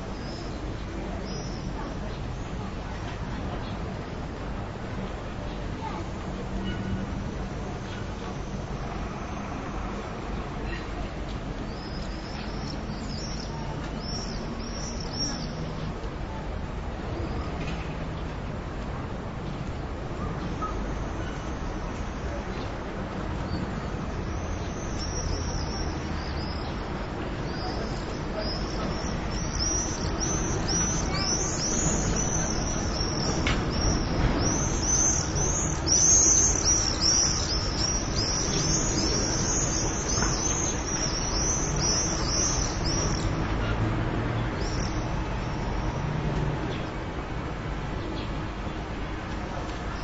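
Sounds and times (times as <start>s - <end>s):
distant traffic rumble: 0.0s - 50.0s
swallows chirping: 27.4s - 43.4s.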